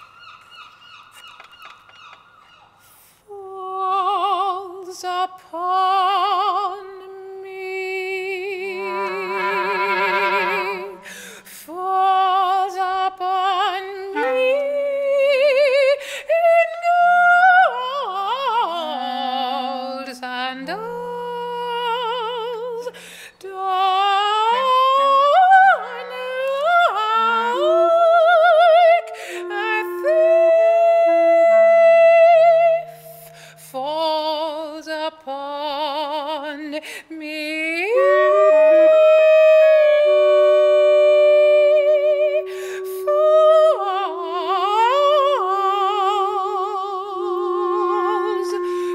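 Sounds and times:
woman singing with vibrato: 3.3 - 48.9
clarinet holding low notes: 8.4 - 11.1, 13.9 - 16.0, 17.6 - 35.0, 37.8 - 48.9.

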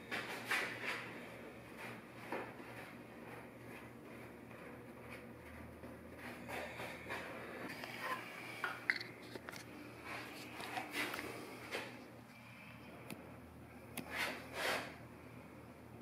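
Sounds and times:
sponge rubbing on a wall: 14.1 - 15.0.

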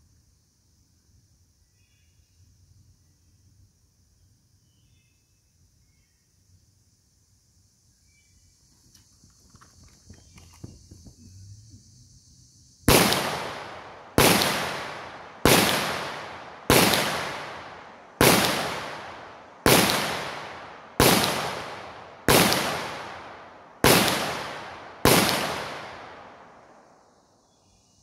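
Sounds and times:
pistol shots with echo: 12.9 - 26.8.

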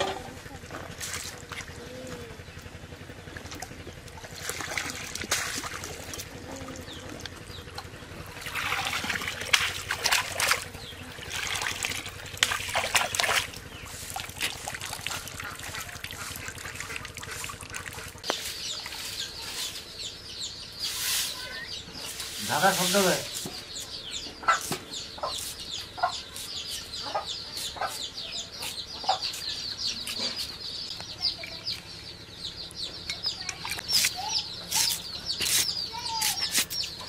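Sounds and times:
water splashing and sloshing: 0.0 - 1.8, 2.6 - 19.2.

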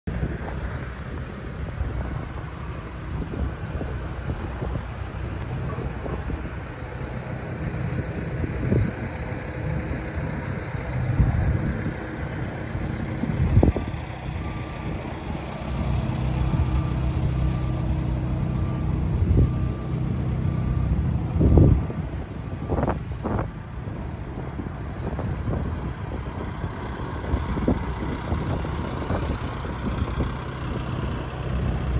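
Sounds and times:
diesel engine running: 0.0 - 31.9
back-up alarm beeping: 12.6 - 23.3.

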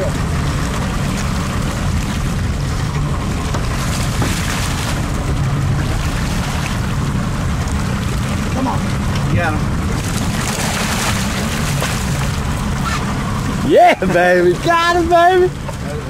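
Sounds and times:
boat engine humming: 0.0 - 16.0
fish splashing at surface: 9.9 - 13.2.

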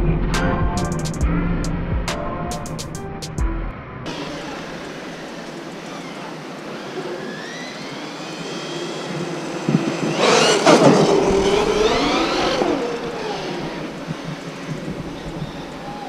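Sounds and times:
electric motor whining: 4.1 - 16.0.

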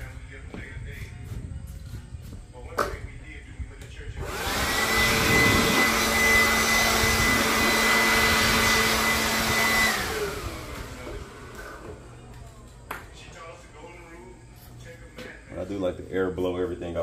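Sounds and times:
leaf blower whine and air rush: 4.0 - 12.4.

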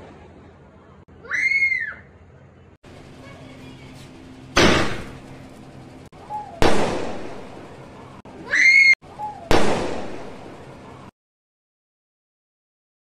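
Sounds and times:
firework bangs: 4.6 - 5.3, 6.5 - 7.7, 9.4 - 10.7.

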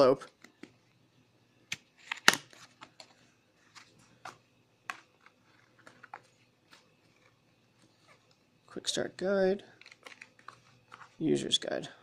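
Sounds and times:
paper envelope crinkling: 9.8 - 11.3.

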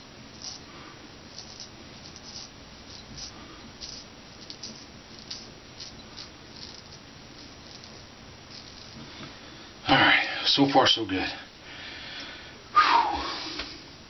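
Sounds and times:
razor scraping stubble: 1.3 - 9.4.

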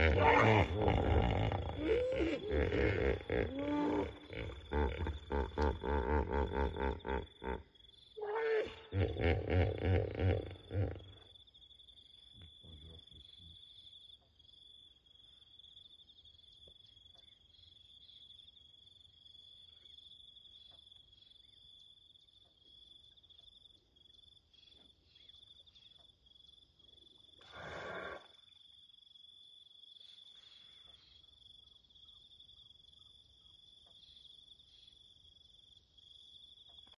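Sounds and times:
hippopotamus honking grunts: 0.0 - 11.2.

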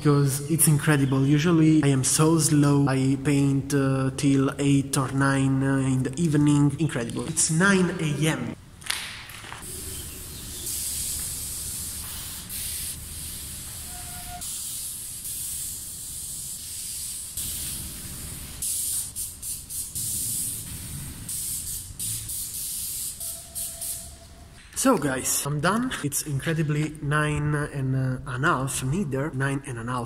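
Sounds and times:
spray paint can spraying: 9.6 - 24.3.

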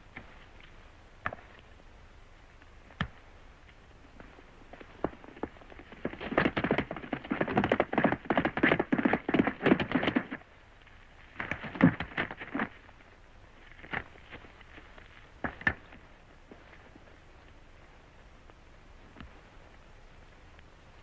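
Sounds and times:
galloping horse hoofbeats: 4.1 - 10.6, 11.3 - 13.0, 15.4 - 16.1.

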